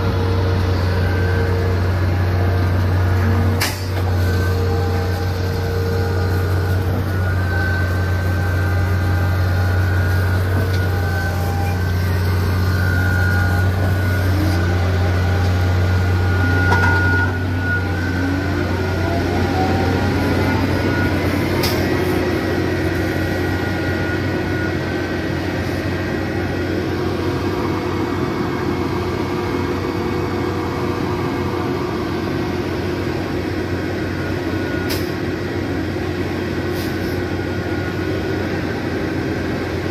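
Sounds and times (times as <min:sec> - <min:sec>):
truck diesel engines running: 0:00.0 - 0:39.9.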